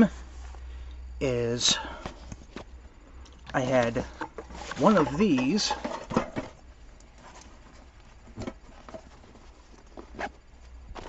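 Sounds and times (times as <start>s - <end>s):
fabric pouch rustling: 7.1s - 11.0s.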